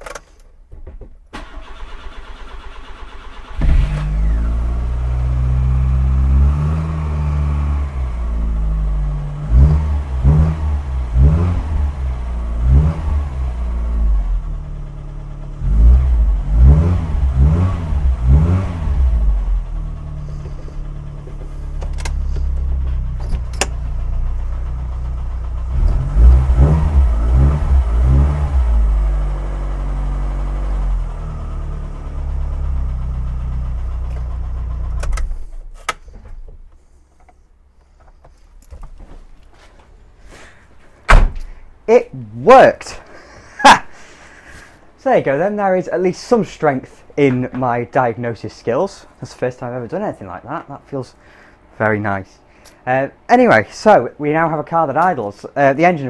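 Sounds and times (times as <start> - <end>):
car engine starting: 1.2 - 44.7
engine revving: 1.4 - 35.2.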